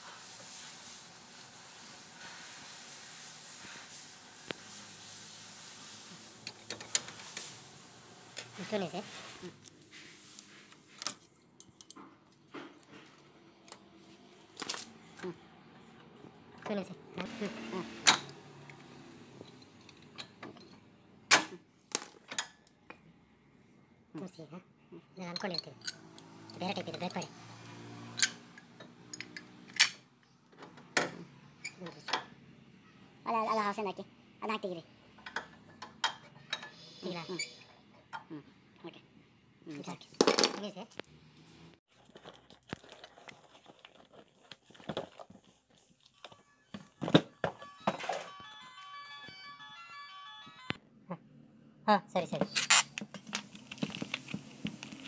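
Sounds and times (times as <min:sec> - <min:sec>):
plastic and cardboard rustling: 0:41.9 - 0:48.5.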